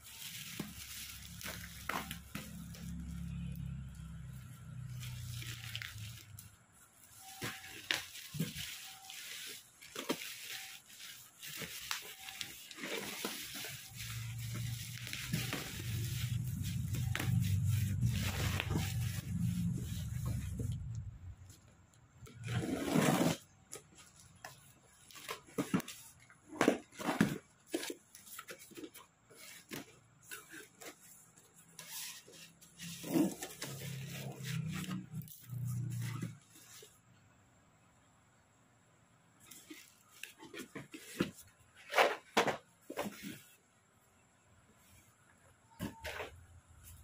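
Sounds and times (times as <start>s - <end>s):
sharp clicks and crinkles: 0.0s - 22.6s
cardboard rustling and knocking: 40.2s - 43.6s.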